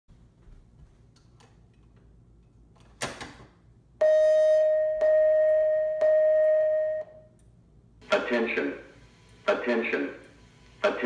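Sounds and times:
pulsing alarm tone: 4.0 - 7.3.

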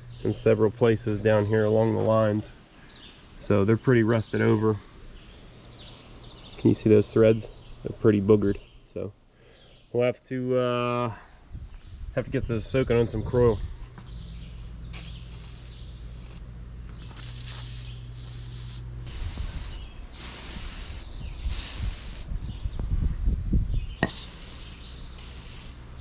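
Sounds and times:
aerosol can spraying bursts: 14.6 - 16.4, 17.1 - 22.3, 24.0 - 25.8.

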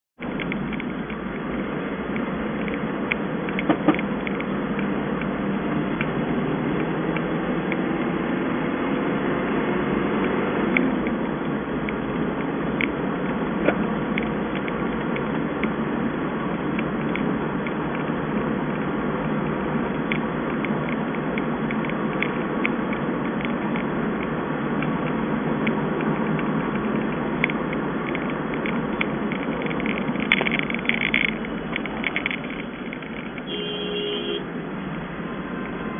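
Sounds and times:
car cabin road and engine noise: 0.2 - 35.9
sharp rattling ticks: 25.6 - 33.5.

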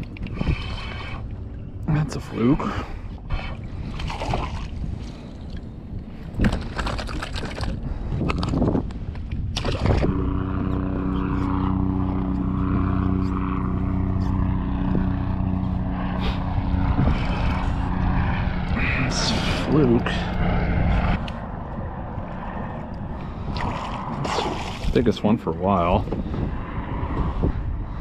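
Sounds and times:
electric trolling motor humming: 0.0 - 6.9, 7.7 - 25.0.

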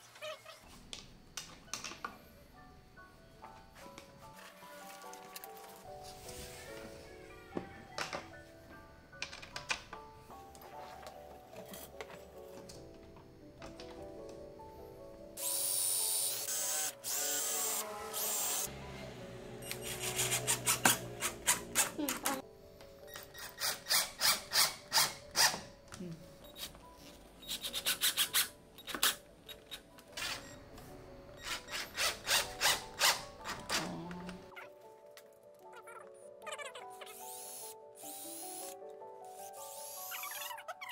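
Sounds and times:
cordless drill driving screws into wood: 39.5 - 40.3.

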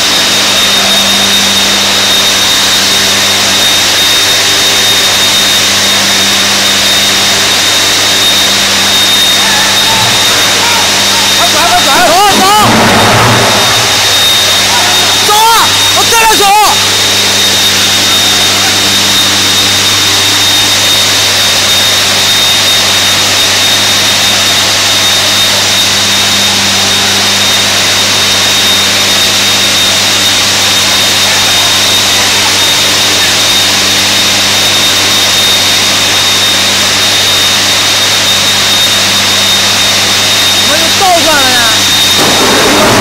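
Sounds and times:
low hum: 0.0 - 16.0, 41.6 - 43.0
furnace hall roar: 0.0 - 43.0
thin high whine: 0.0 - 43.0.

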